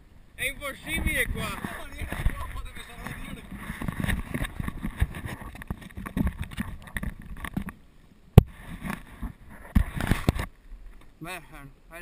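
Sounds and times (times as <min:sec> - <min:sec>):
camera handling knocks and rubbing: 0:03.0 - 0:07.8, 0:08.4 - 0:10.5.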